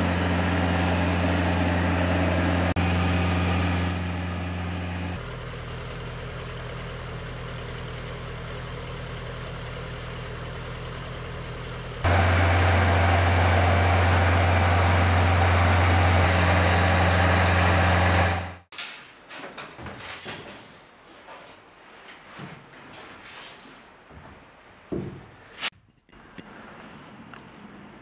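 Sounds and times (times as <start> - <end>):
engine running with low hum: 0.0 - 18.7.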